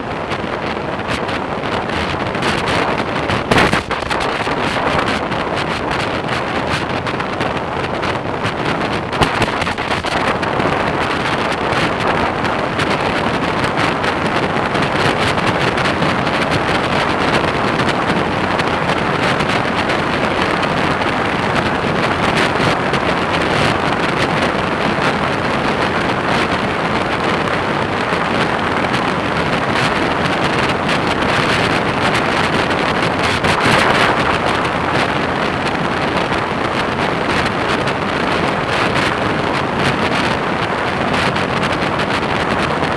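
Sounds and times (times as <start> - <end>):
motorcycle engine: 0.0 - 25.5
wind rushing over microphone: 0.0 - 42.9.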